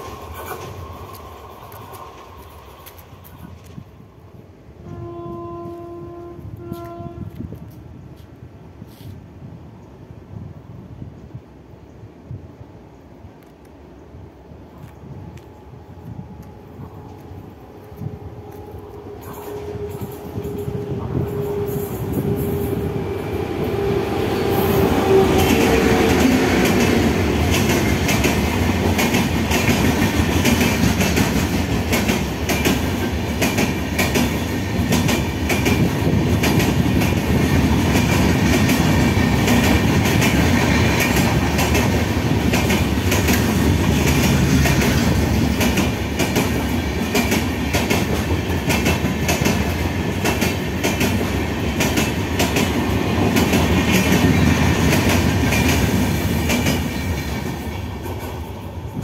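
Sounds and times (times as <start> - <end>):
electric locomotive hum: 0.0 - 8.7, 9.8 - 59.0
train coaches rumbling past: 0.0 - 59.0
wheels clacking over rail joints: 24.7 - 58.5.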